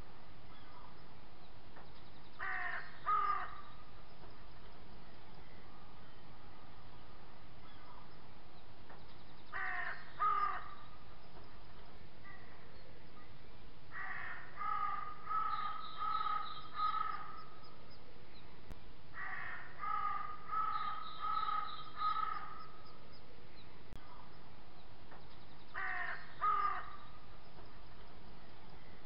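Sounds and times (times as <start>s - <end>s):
faint steady hiss: 0.0s - 29.0s
crows cawing: 2.4s - 3.8s, 9.5s - 11.0s, 13.9s - 17.6s, 19.1s - 22.8s, 25.7s - 27.2s.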